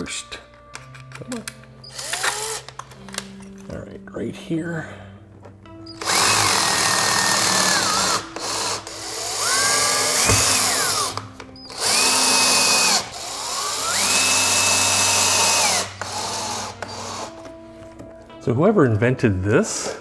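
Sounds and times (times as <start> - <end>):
power drill driving screws: 1.9 - 2.8, 5.9 - 17.5.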